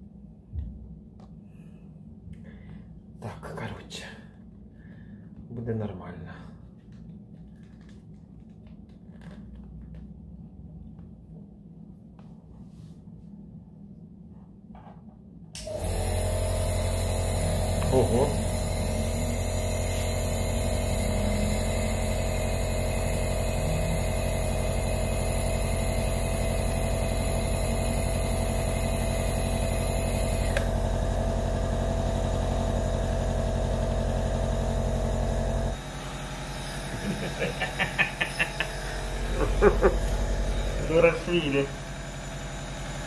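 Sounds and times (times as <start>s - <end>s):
nebulizer compressor humming: 15.6s - 43.0s.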